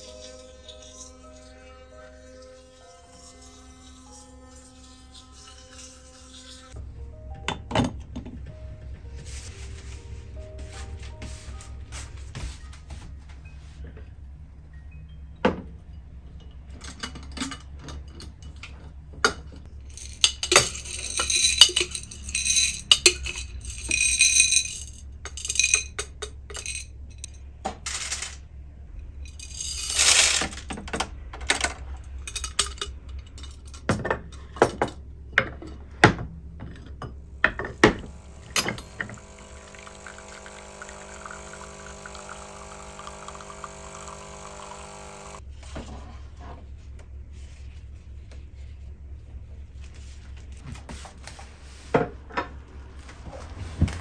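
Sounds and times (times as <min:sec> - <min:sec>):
coffee beans rattling: 0:19.8 - 0:26.9, 0:27.8 - 0:28.4, 0:29.3 - 0:30.7, 0:37.9 - 0:45.4
glass and china clinking: 0:19.9 - 0:26.9, 0:38.0 - 0:45.4
coffee machine pump humming: 0:37.7 - 0:45.4.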